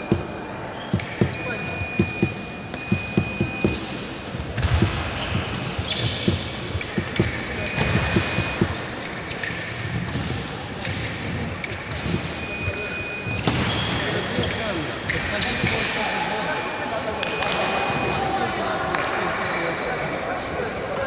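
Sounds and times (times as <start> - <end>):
electronic beeps: 0.0 - 4.0, 4.8 - 8.8, 12.0 - 15.8, 16.7 - 18.5.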